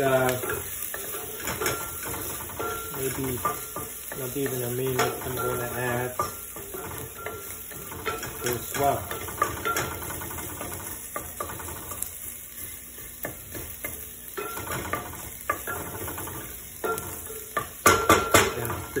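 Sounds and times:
oil sizzling: 0.0 - 19.0.

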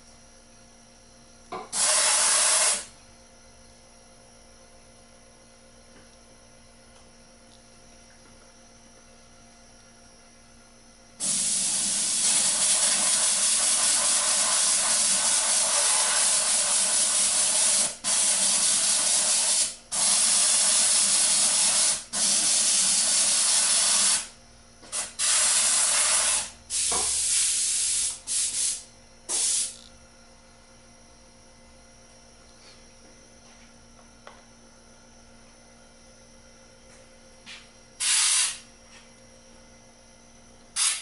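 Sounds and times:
airbrush hissing: 1.8 - 2.9, 11.2 - 24.3, 25.0 - 29.8, 38.0 - 38.6.

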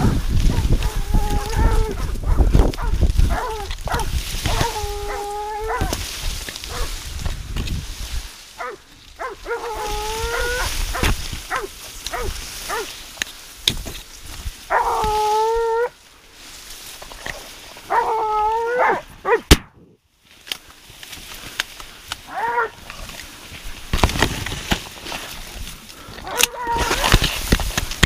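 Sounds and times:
leaves rustling: 0.0 - 28.0
dogs howling: 0.4 - 6.0, 8.6 - 12.9, 14.7 - 16.0, 17.9 - 19.4, 22.3 - 22.8, 26.2 - 27.1
dogs yelping: 0.4 - 6.0, 6.7 - 7.0, 8.6 - 12.9, 14.7 - 16.0, 17.9 - 19.5, 22.3 - 22.8, 26.2 - 27.2.

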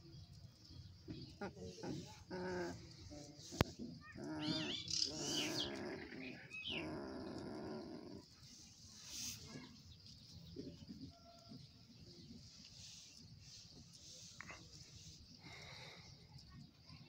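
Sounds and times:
puppies whimpering and whining: 1.4 - 8.2.

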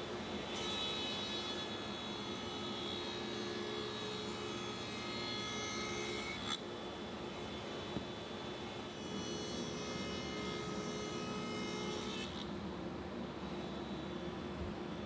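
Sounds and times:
table saw cutting wood: 0.5 - 6.6, 9.0 - 12.5.

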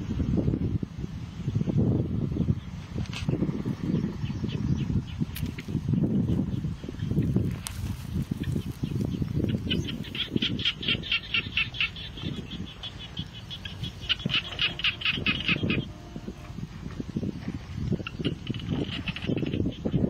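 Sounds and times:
bird chattering call: 8.4 - 16.2, 17.9 - 20.0.

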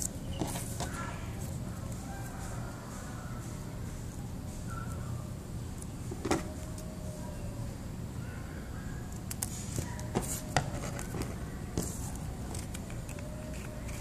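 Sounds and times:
steady low background noise: 0.0 - 14.0
scissors snipping paper: 12.5 - 14.0.

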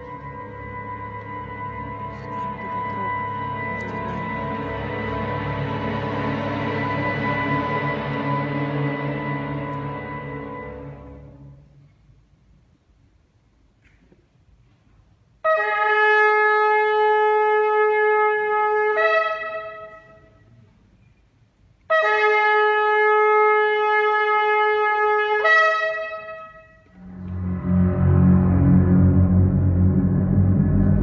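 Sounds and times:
deep loud rumbling: 27.0 - 31.0.

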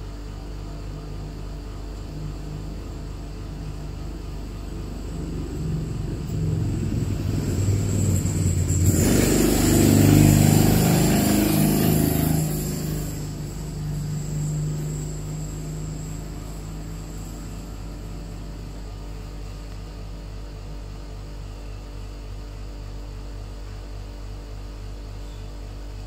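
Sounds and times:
vehicle engine running: 0.0 - 22.0
loud rushing noise: 5.0 - 16.9.

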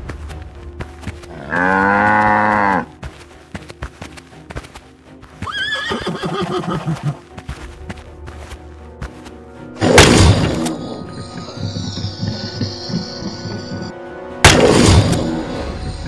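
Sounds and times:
background music: 0.0 - 16.0
horse whinnying: 5.4 - 7.2.

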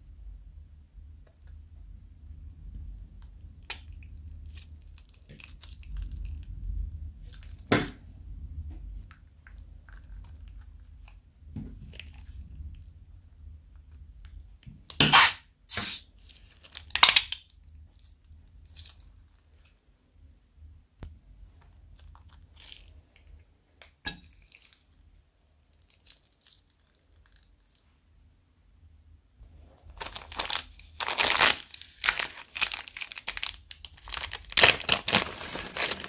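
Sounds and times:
slime squishing: 3.6 - 8.0, 9.0 - 12.8, 21.5 - 23.5, 29.8 - 36.0
plastic bag crinkling: 29.9 - 36.0.

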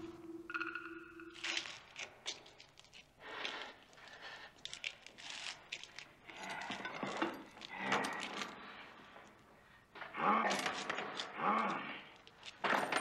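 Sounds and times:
iron chains rattling over stone: 12.5 - 13.0.

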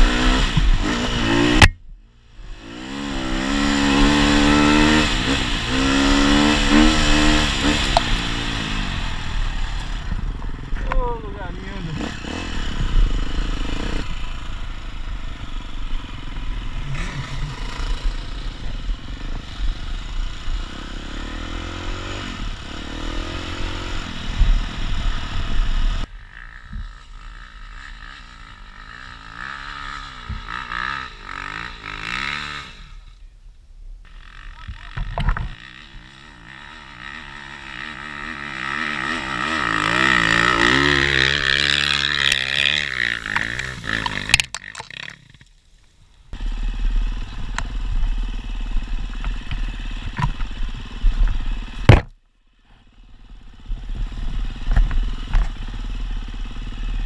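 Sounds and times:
second dirt bike revving: 0.0 - 1.7, 2.3 - 33.2, 34.0 - 45.4
dirt bike engine: 0.0 - 57.0.

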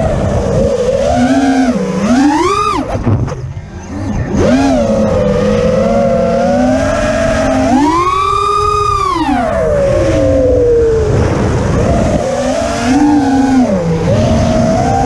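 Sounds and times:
quadcopter motors whining: 0.0 - 15.0
rush of air: 8.3 - 12.9.

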